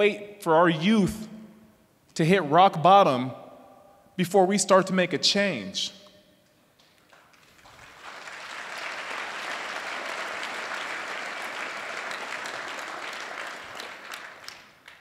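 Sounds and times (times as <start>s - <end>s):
crowd clapping: 6.8s - 15.0s.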